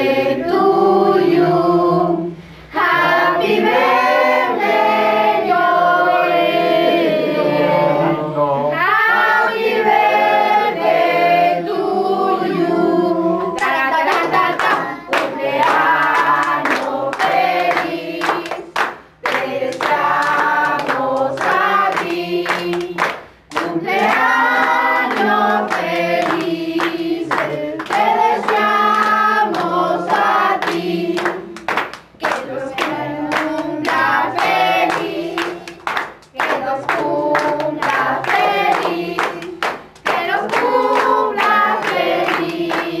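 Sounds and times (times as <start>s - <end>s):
group of people singing: 0.0s - 43.0s
hand-clapping: 13.5s - 43.0s.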